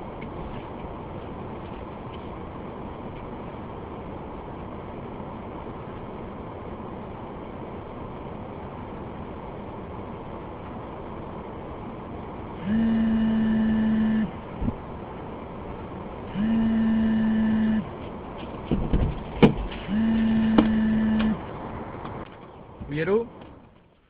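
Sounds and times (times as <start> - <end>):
mobile phone buzzing: 12.6 - 14.4, 16.3 - 17.9, 19.9 - 21.4
knocks: 18.7 - 19.7, 20.5 - 20.8.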